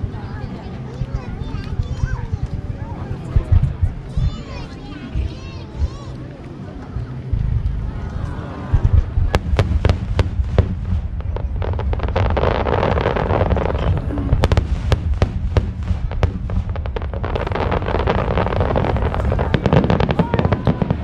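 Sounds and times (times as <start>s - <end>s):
low rumble: 0.0s - 21.0s
fireworks crackling hiss: 9.2s - 21.0s.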